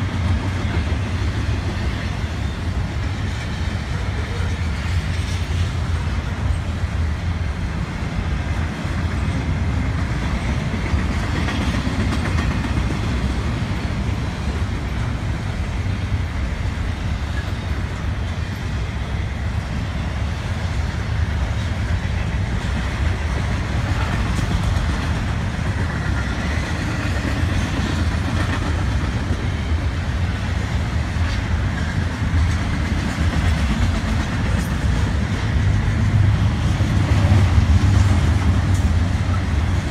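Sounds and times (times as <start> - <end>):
train wheels rumbling on rail: 0.0 - 39.9.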